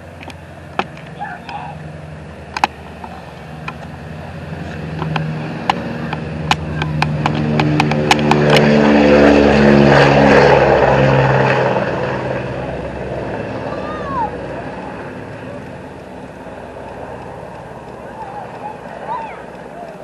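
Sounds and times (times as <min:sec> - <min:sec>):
propeller plane engines passing: 0:00.0 - 0:20.0
sharp clicks: 0:15.6 - 0:20.0.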